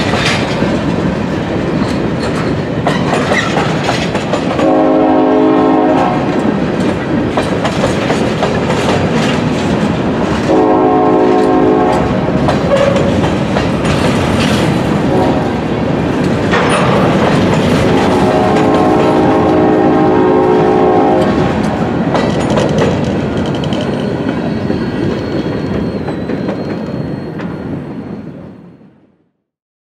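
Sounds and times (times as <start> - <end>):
freight train wheels rumbling: 0.0 - 28.9
locomotive horn blasts: 4.6 - 6.3, 10.5 - 12.2, 15.1 - 15.6, 18.0 - 21.4.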